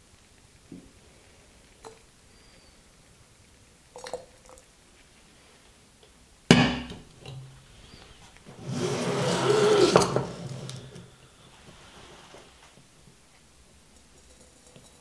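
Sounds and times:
burner scraping across table: 7.8s - 12.8s.

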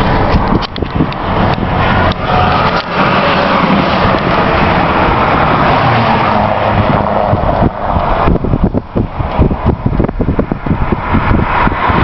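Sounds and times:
truck passing close by: 0.0s - 12.0s
wind gusting on microphone: 0.0s - 12.0s.

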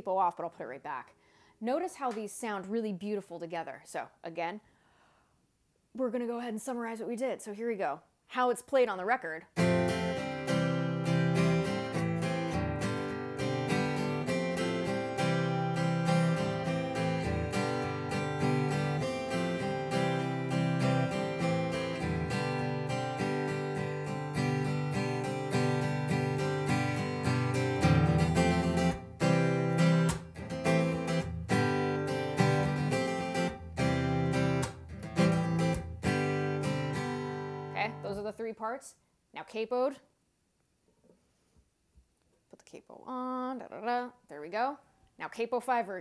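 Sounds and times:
acoustic guitar strumming: 9.6s - 38.3s.

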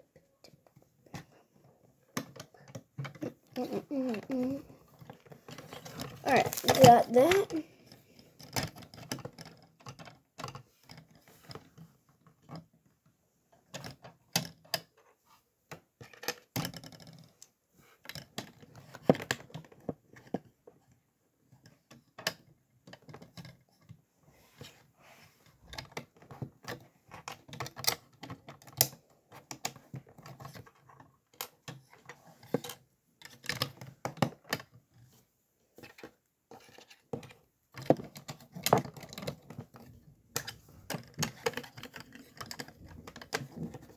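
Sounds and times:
plastic bricks clicking and rattling: 2.1s - 11.7s, 35.8s - 43.9s.

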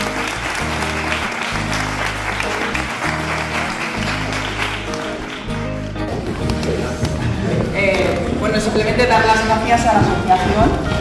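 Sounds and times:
small group applauding: 0.0s - 7.2s
background music: 0.0s - 11.0s.

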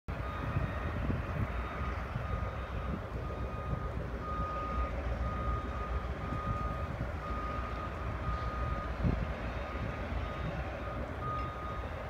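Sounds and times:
diesel locomotive engine rumble: 0.1s - 12.0s
backup alarm beeping: 0.2s - 12.0s.

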